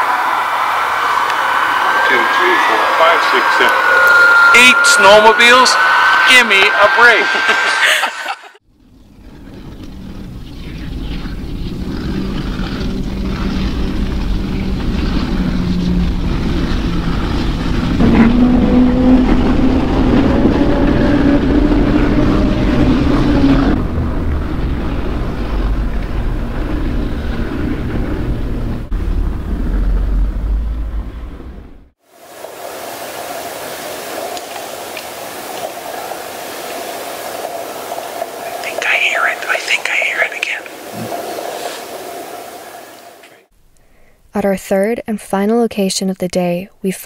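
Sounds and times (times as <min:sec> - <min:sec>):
snowmobile engines droning underwater: 0:00.0 - 0:39.3
hissy underwater background: 0:01.1 - 0:08.6, 0:32.0 - 0:44.3.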